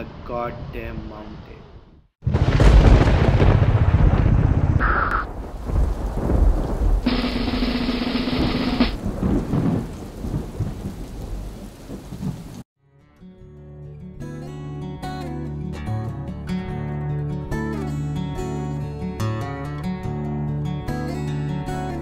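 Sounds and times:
thunder rumbling: 2.2s - 12.6s
rain hiss: 4.8s - 12.6s
steady hum: 7.1s - 9.0s.

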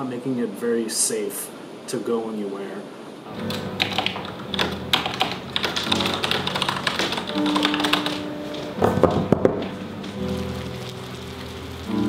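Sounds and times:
typing on computer keyboard: 3.3s - 9.2s
background music with held notes: 3.3s - 12.0s.

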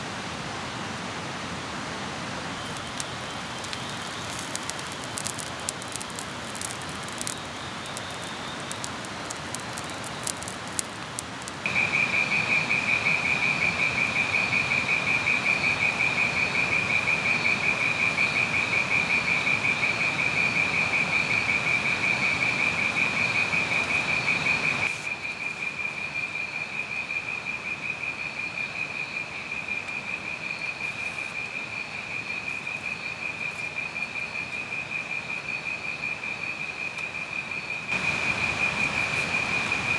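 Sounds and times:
wood fire crackling: 2.4s - 25.7s, 37.9s - 39.9s
insect trilling: 2.6s - 39.9s.

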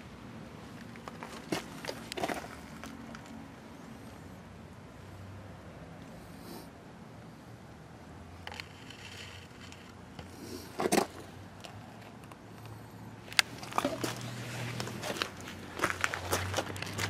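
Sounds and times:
small clicks and rattles: 8.4s - 10.0s
loud scrape: 8.5s - 11.2s.

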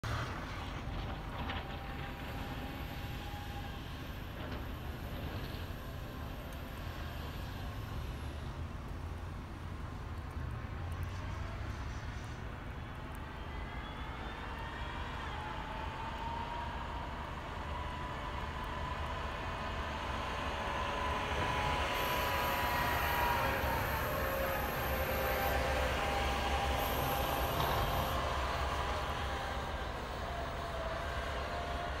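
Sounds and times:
diesel engine rumbling: 0.0s - 32.0s
faint engine whine: 0.0s - 32.0s.

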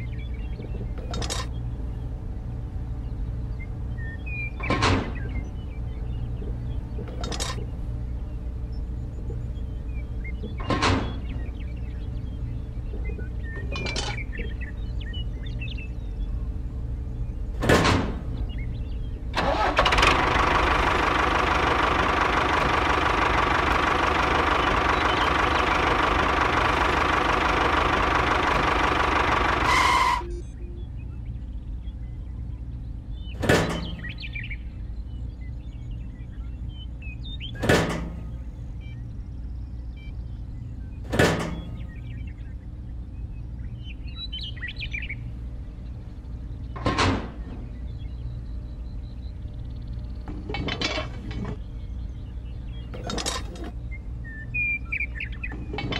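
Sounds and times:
metal parts knocking: 0.6s - 1.6s, 7.0s - 7.7s, 13.6s - 14.5s, 50.3s - 51.6s, 52.8s - 53.8s
small motor running: 19.4s - 30.2s.

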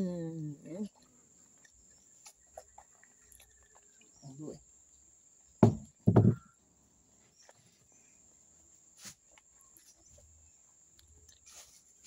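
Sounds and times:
loud muffled thumps: 5.6s - 6.5s.

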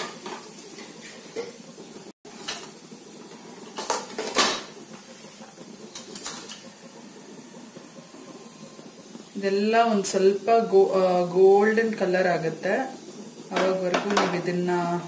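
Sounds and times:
spices sizzling in hot oil: 0.0s - 15.0s
kitchen utensils clinking: 3.7s - 4.8s, 5.9s - 6.7s.

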